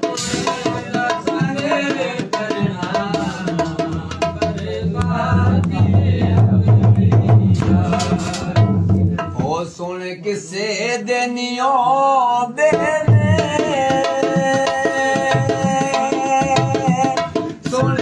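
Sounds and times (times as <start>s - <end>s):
man singing: 0.0s - 18.0s.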